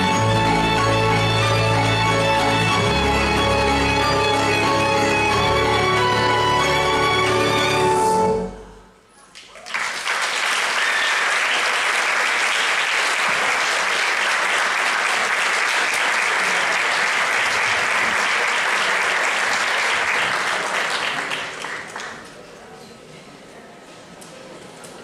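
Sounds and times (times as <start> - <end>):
audience applauding: 9.3 - 22.4.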